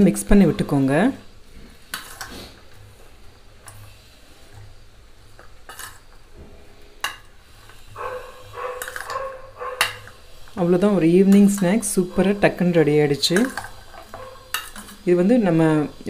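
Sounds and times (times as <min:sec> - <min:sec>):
metal spoon scraping steel bowl: 0:01.8 - 0:02.7, 0:05.6 - 0:06.2, 0:07.0 - 0:16.0.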